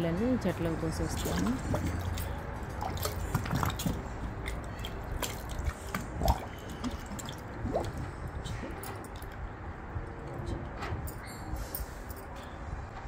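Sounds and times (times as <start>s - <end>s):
water plop: 1.1s - 8.1s.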